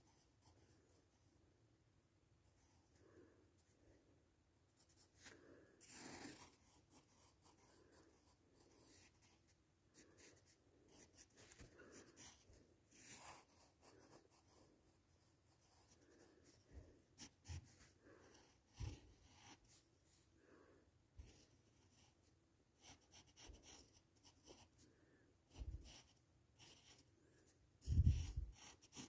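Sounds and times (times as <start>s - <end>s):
pencil scratching on paper: 4.8s - 16.6s, 17.2s - 19.8s, 21.2s - 22.2s, 22.8s - 24.8s, 25.4s - 27.1s, 27.8s - 29.0s.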